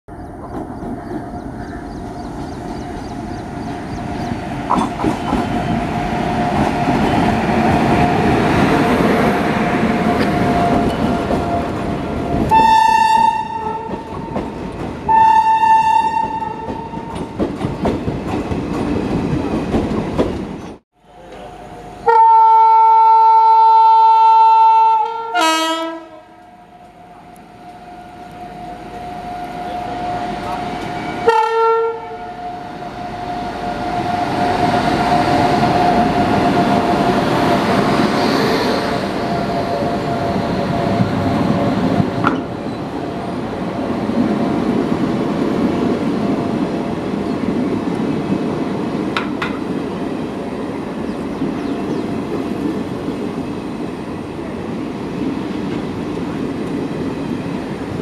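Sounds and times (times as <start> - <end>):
train rumbling on track: 0.1 - 23.6, 24.9 - 58.0
electric locomotive hum: 0.1 - 58.0
locomotive air horn blasts: 12.5 - 14.1, 15.1 - 17.0, 22.0 - 30.3, 31.0 - 33.2.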